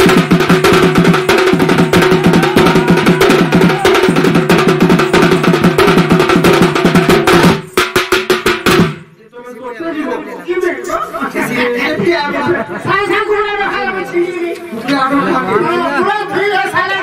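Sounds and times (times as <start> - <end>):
barrel drum beaten fast: 0.0 - 9.1.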